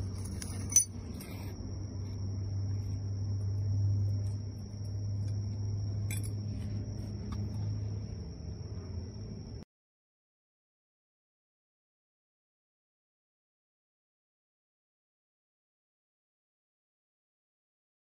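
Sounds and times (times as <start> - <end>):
metal bracket clinking: 0.0 - 1.4, 6.0 - 6.4
steady low hum: 0.0 - 9.6.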